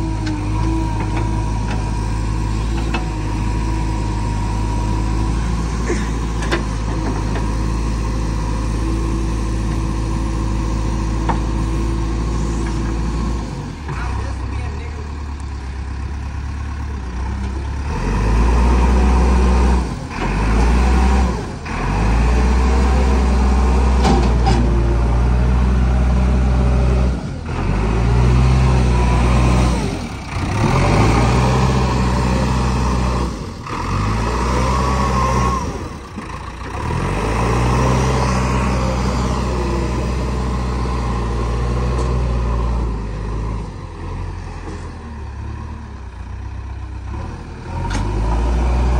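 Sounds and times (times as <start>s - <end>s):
diesel engine revving hard: 17.7s - 46.2s, 46.9s - 48.9s.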